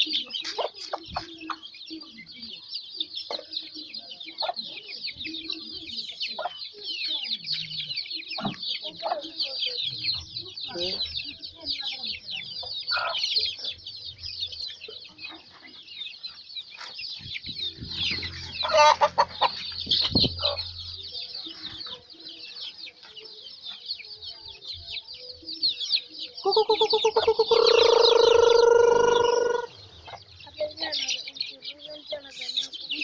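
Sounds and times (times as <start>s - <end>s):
hens clucking: 0.0s - 23.8s, 26.0s - 33.0s
chicks peeping: 0.0s - 33.0s
loud drawn-out chicken call: 18.0s - 20.6s, 26.7s - 29.8s.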